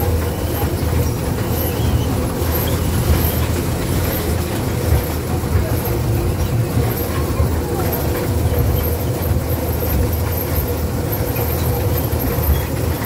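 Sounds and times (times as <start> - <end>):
ride train rumbling: 0.0 - 13.0.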